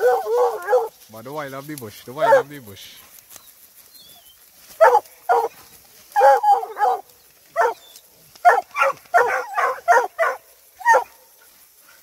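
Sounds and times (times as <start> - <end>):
dogs barking excitedly: 0.0 - 1.0, 2.1 - 2.7, 4.5 - 11.5.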